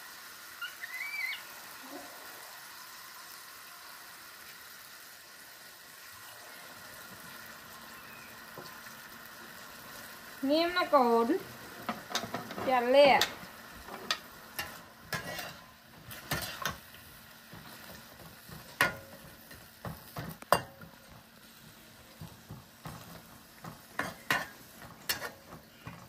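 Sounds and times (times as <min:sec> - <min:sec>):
light sizzle: 0:00.0 - 0:26.0
metal spatula scraping wok: 0:11.8 - 0:16.9, 0:22.2 - 0:26.0.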